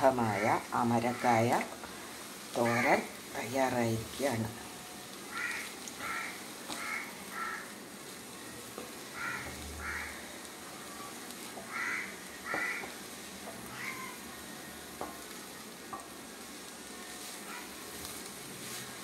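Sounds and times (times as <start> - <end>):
food stirred in hot pan: 0.0 - 19.0
crow cawing: 5.3 - 7.7, 9.2 - 10.2, 11.7 - 12.9, 13.7 - 14.2, 17.5 - 17.7.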